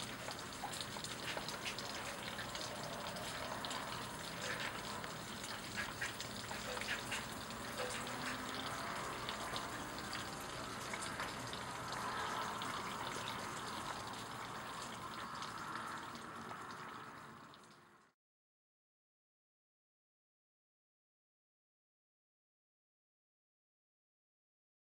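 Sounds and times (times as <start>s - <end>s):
sharp raindrop ticks: 0.0s - 17.8s
rain falling steadily: 0.0s - 18.2s.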